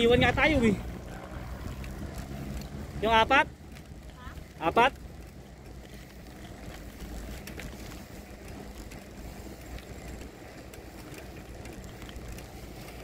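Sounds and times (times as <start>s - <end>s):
bicycle tyres rumbling on pavement: 0.0s - 13.0s
faint clicks: 3.7s - 13.0s.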